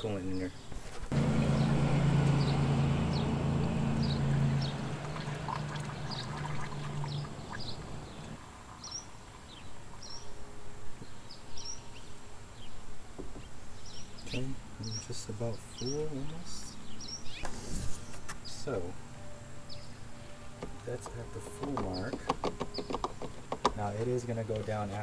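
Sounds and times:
small birds chirping: 0.0 - 10.4, 11.0 - 25.0
liquid pouring through funnel: 5.0 - 7.8.

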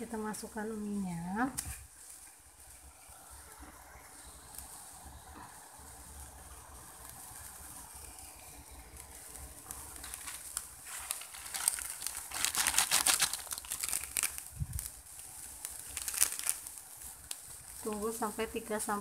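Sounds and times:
plastic packet crinkling: 9.0 - 18.9.

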